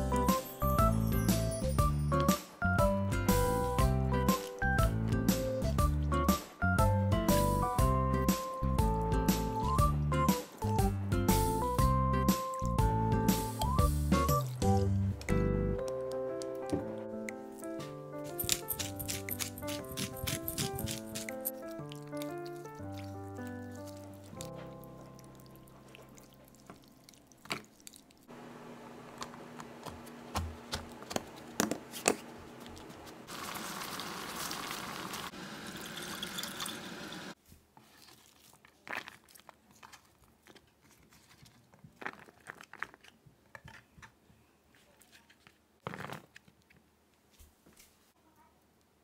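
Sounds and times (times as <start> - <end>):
running liquid: 33.3 - 37.4.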